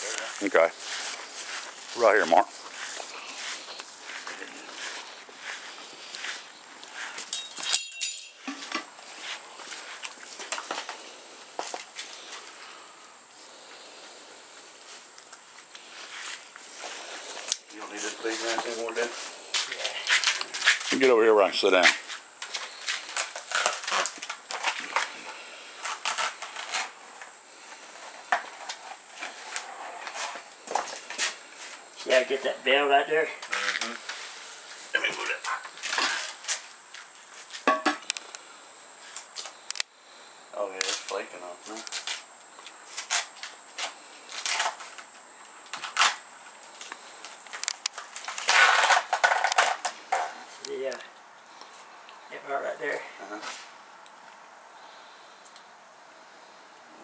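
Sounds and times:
palm leaves cracking and tearing: 0:22.4 - 0:27.0, 0:35.1 - 0:38.4, 0:39.1 - 0:39.9, 0:40.8 - 0:50.0.

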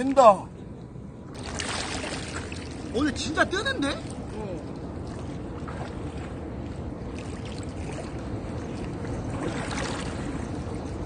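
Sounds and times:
water splashing and sloshing: 0:01.3 - 0:11.0
faint paddle strokes: 0:03.9 - 0:11.0.

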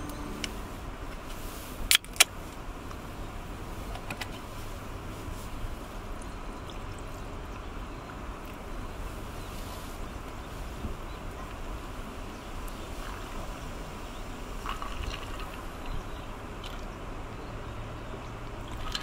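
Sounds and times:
background hiss: 0:00.0 - 0:01.9.

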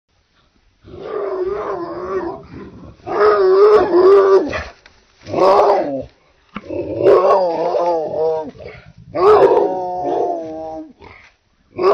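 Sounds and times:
dog growling howls: 0:00.9 - 0:04.6, 0:05.3 - 0:11.0.

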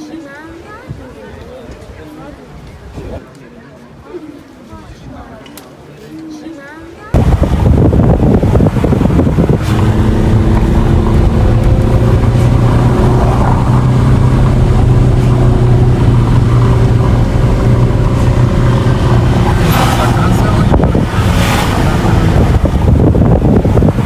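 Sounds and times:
wind noise: 0:07.1 - 0:24.0.

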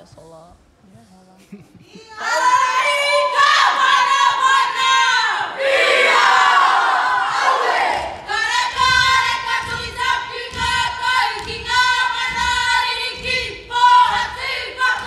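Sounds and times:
people shouting and cheering: 0:02.1 - 0:15.0
group of women singing: 0:07.1 - 0:15.0
low rhythmic thumps: 0:07.8 - 0:15.0.

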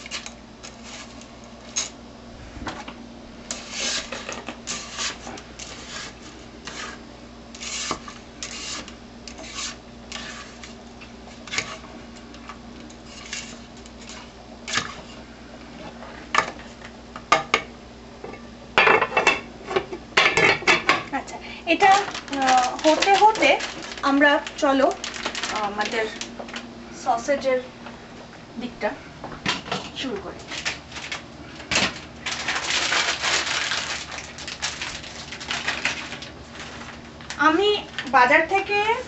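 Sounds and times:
spoon stirring and scraping pot: 0:00.0 - 0:01.9, 0:03.5 - 0:07.0, 0:07.6 - 0:15.2.

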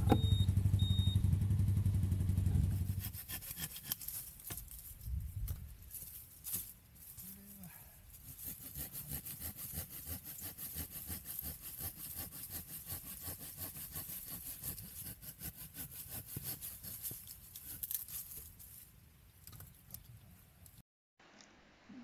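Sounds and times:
hand saw cutting branch: 0:02.7 - 0:04.7, 0:08.1 - 0:18.4.

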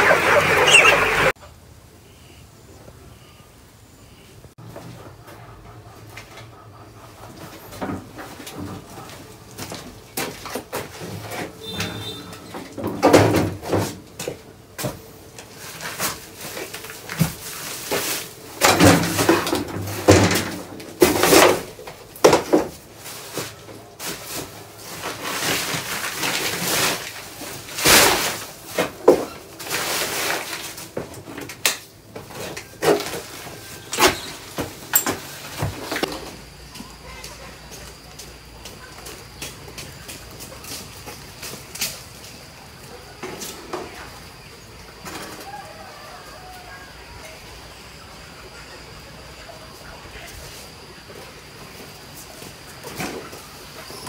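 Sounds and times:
plastic sacks rustling and knocking: 0:12.6 - 0:36.6.

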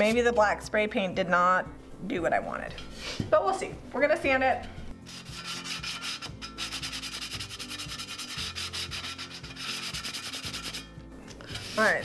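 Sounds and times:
sanding sponge rubbing on metal: 0:05.0 - 0:10.9, 0:11.5 - 0:12.0.

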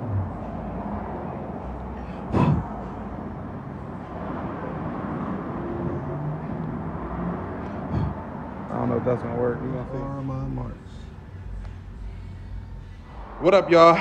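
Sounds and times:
low background noise: 0:00.0 - 0:14.0.

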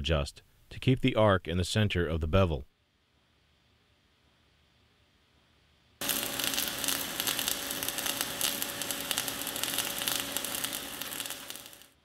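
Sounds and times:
faint steady hum: 0:00.0 - 0:12.0
welding arc crackling and sizzling: 0:06.0 - 0:12.0.

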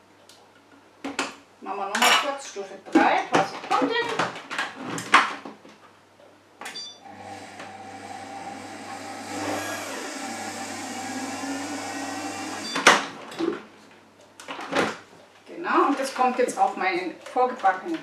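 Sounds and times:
food processor motor running: 0:07.0 - 0:12.9.

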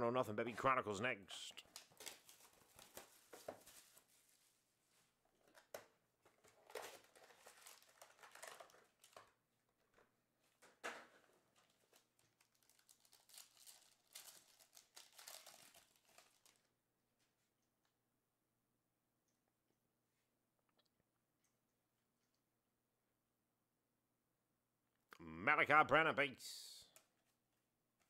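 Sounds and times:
foil wrappers crinkling: 0:01.6 - 0:04.5, 0:06.4 - 0:09.4, 0:11.5 - 0:16.7.

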